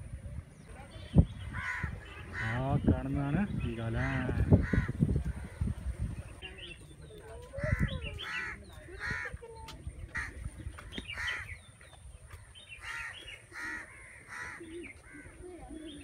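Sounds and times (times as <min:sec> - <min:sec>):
crows cawing: 0:01.6 - 0:02.6, 0:04.0 - 0:05.0, 0:12.8 - 0:15.3.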